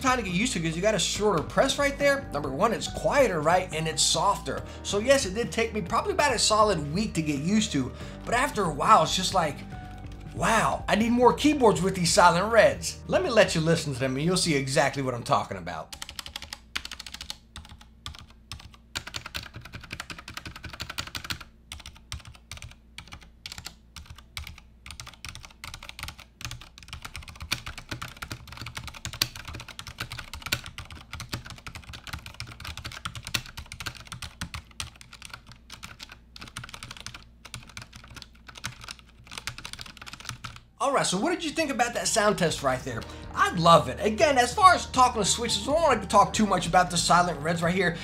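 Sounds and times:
soft keyboard typing: 0:05.1 - 0:10.4, 0:15.9 - 0:40.7.

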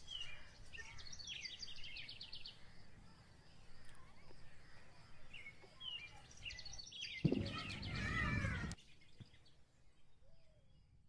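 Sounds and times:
small birds chirping: 0:00.0 - 0:11.0
loud noisy burst with pitched call: 0:07.4 - 0:08.7.

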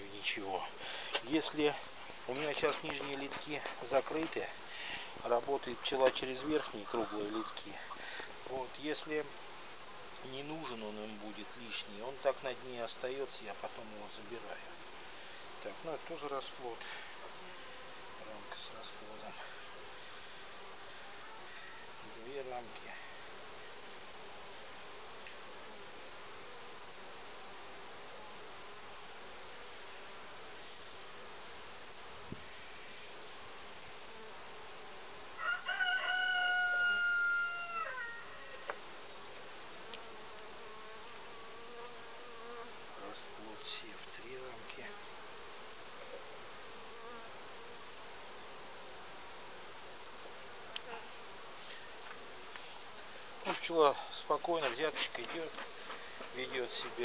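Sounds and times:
honeybees buzzing: 0:00.0 - 0:57.0
rooster crowing: 0:35.4 - 0:38.7.

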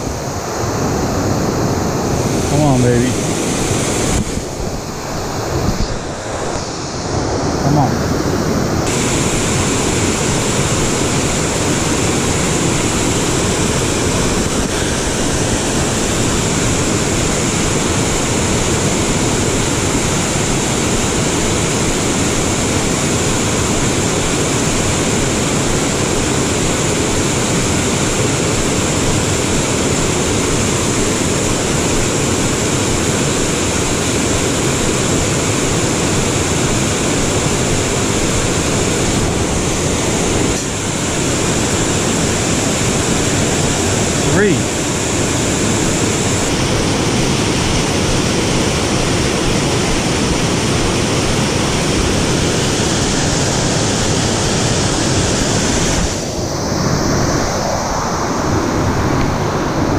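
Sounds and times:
small waterfall rushing: 0:00.0 - 0:59.9.

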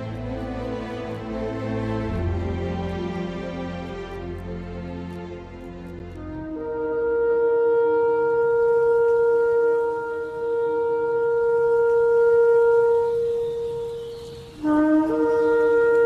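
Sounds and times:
horn-like wind instrument note: 0:06.2 - 0:16.0.

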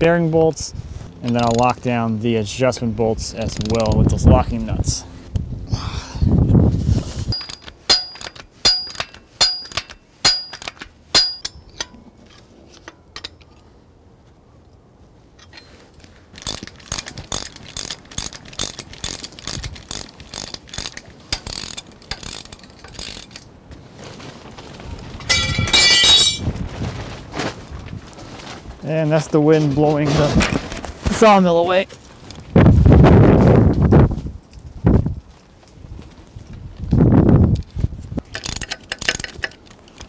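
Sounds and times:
metallic clatter with ringing: 0:07.3 - 0:13.6, 0:25.2 - 0:26.5
ratcheting wrench clicking: 0:16.4 - 0:23.4, 0:38.3 - 0:39.6.

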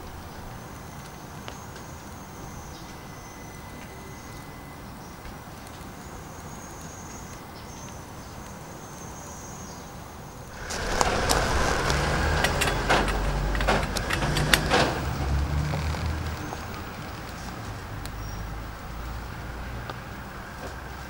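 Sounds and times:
burning wood crackling: 0:05.2 - 0:21.0
low rush of flame: 0:10.4 - 0:20.6.

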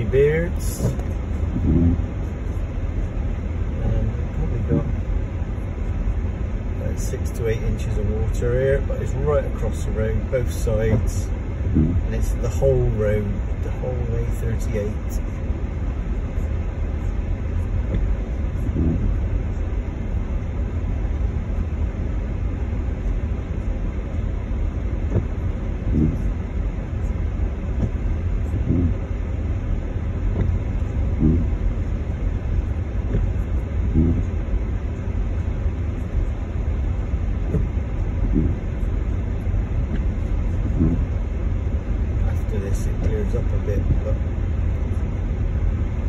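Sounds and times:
engine and tyres rumbling in water: 0:00.0 - 0:46.0
dull thump: 0:00.7 - 0:02.0, 0:28.6 - 0:29.0, 0:33.1 - 0:34.3, 0:39.9 - 0:41.0.

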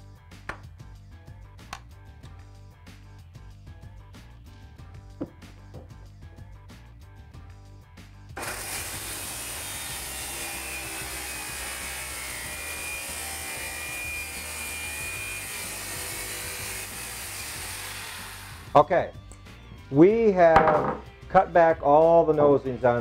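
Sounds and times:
circular saw cutting wood: 0:08.4 - 0:18.8
soft background music: 0:18.6 - 0:23.0.

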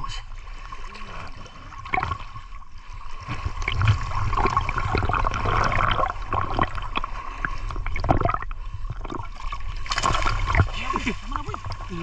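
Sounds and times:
water sloshing from wading: 0:00.0 - 0:12.0
sharp splashes: 0:09.3 - 0:12.0.

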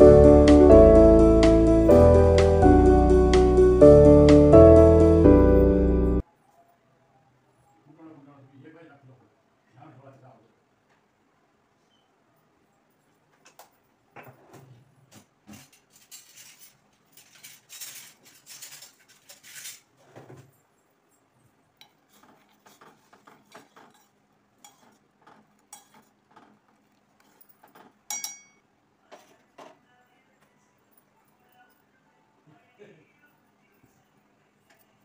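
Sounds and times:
kitchen utensils clattering: 0:15.5 - 0:20.5, 0:21.8 - 0:26.6, 0:27.3 - 0:28.6
ringing metallic clink: 0:28.1 - 0:28.6.

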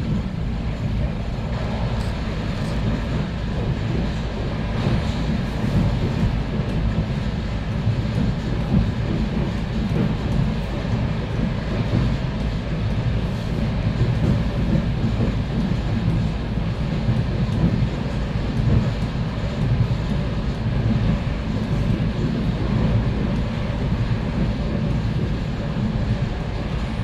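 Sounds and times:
train wheels rumbling: 0:00.0 - 0:27.0.

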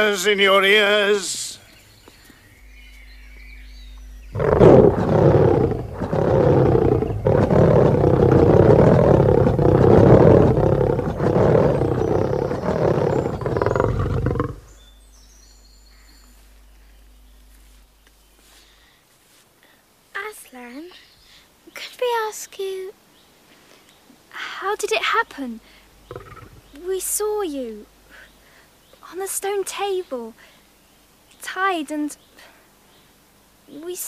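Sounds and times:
lion roaring: 0:03.1 - 0:14.8, 0:26.1 - 0:26.7.

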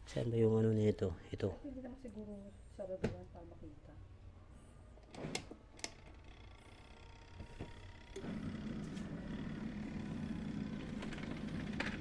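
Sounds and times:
washing machine motor humming: 0:05.9 - 0:12.0.

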